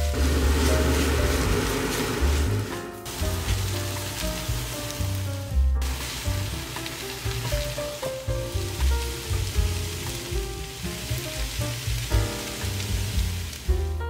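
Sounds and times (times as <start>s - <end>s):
wooden spatula stirring: 0.0s - 13.8s
background music: 0.0s - 14.0s
fried rice sizzling in a pan: 0.0s - 14.0s.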